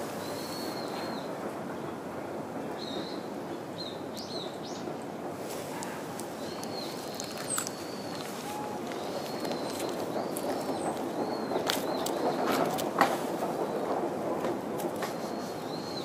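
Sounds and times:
songbirds chirping and whistling: 0:00.2 - 0:01.4, 0:05.9 - 0:12.6, 0:15.2 - 0:16.0.

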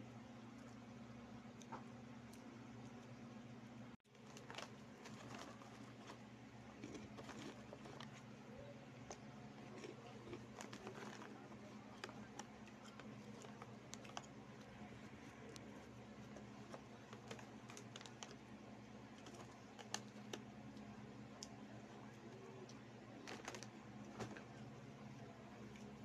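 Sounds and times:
steady low hum: 0:00.0 - 0:26.0
plastic bag crackling: 0:04.1 - 0:08.3, 0:09.1 - 0:18.4, 0:23.1 - 0:24.6
crunchy snacks being chewed: 0:04.1 - 0:24.6.

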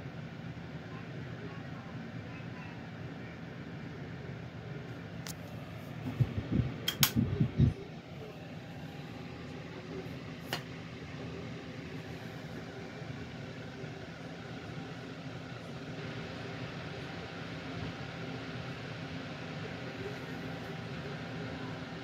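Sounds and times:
table fan humming: 0:00.0 - 0:22.0
sharp clicks: 0:06.9 - 0:07.2.

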